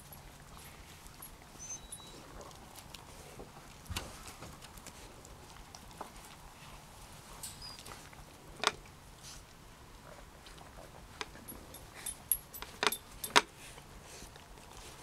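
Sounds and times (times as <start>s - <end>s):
light metallic clinks: 1.2s - 2.2s, 11.2s - 13.5s.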